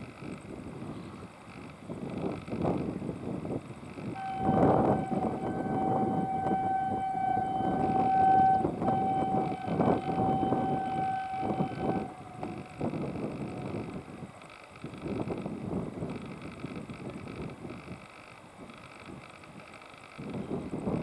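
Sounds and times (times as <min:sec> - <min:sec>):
locomotive horn: 0:04.2 - 0:13.8.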